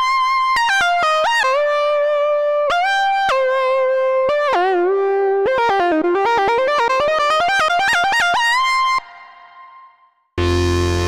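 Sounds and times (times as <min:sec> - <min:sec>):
synthesizer lead melody: 0:09.0 - 0:11.0.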